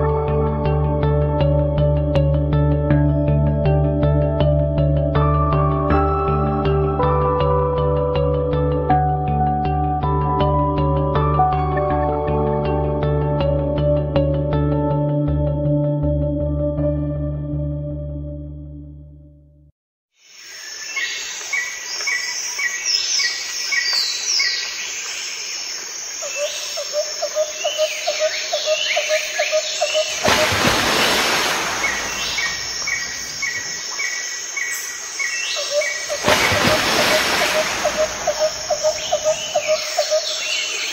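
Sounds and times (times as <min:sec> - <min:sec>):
lower pulsed bird notes: 0:26.2 - 0:40.9
birds chirping and calling: 0:31.8 - 0:40.9.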